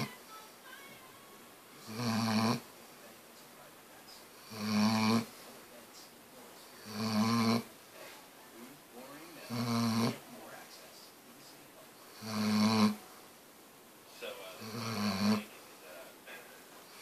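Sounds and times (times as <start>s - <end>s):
dog snoring: 1.8s - 2.7s, 4.3s - 5.4s, 6.7s - 7.7s, 9.3s - 10.3s, 12.0s - 13.0s, 14.6s - 15.5s.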